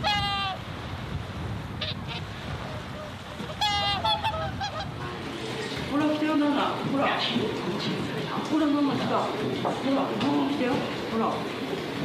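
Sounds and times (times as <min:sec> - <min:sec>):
swans honking: 0:00.0 - 0:00.7, 0:01.8 - 0:05.5
lake water: 0:00.0 - 0:12.0
wind: 0:00.0 - 0:12.0.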